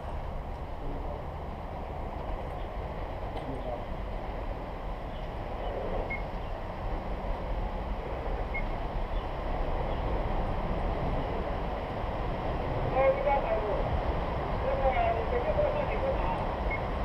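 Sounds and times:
distant train rumble: 0:00.0 - 0:17.0.

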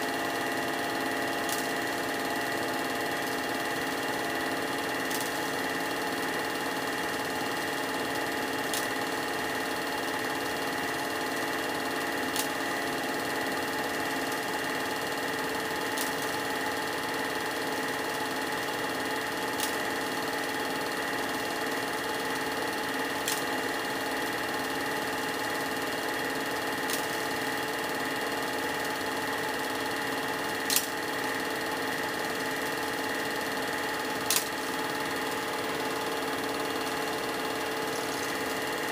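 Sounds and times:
film projector whirring: 0:00.0 - 0:38.9
projector clicking: 0:00.1 - 0:38.9.

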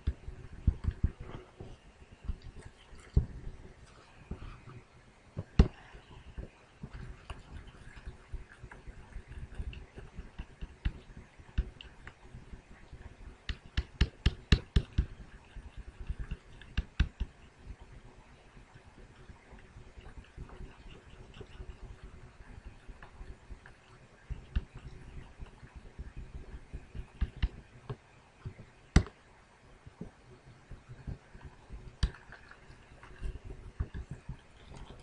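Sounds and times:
stylus tapping on drawing surface: 0:13.5 - 0:15.2.

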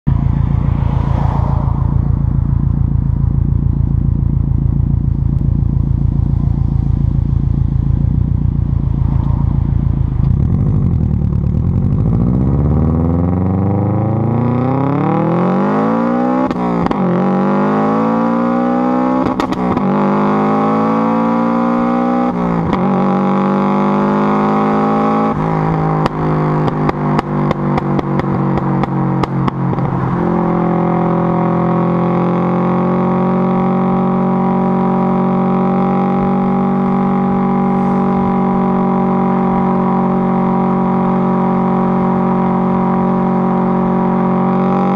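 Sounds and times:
car engine accelerating: 0:00.0 - 0:44.9
exhaust pops and crackles: 0:19.2 - 0:19.9, 0:26.0 - 0:29.9.

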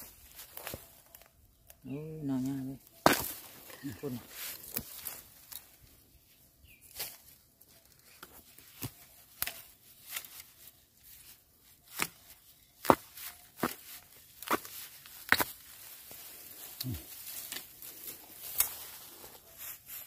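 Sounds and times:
bamboo snapping and crackling: 0:00.0 - 0:02.1, 0:02.7 - 0:05.9, 0:06.9 - 0:19.1.

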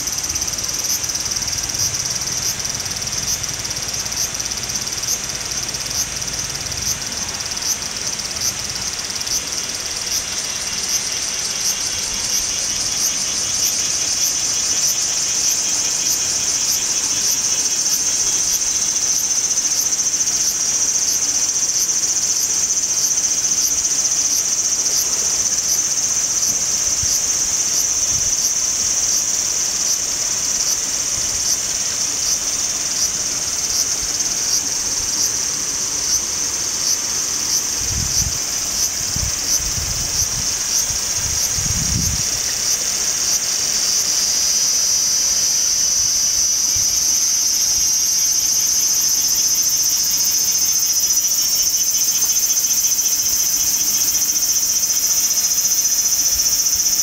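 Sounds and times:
cicadas singing: 0:00.0 - 0:57.0.

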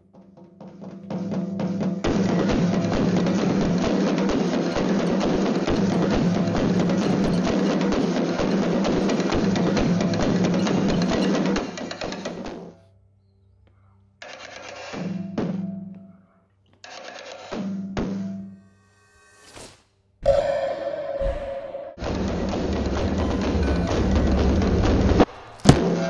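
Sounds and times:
percussion background music: 0:00.0 - 0:12.7, 0:22.0 - 0:26.0.

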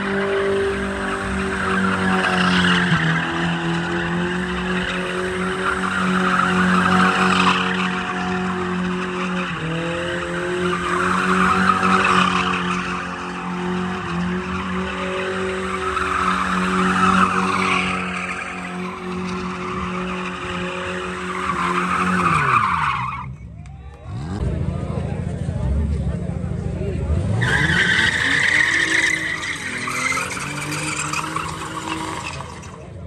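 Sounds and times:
car engine at high revs: 0:00.0 - 0:33.0
tyres squealing: 0:27.4 - 0:32.8.

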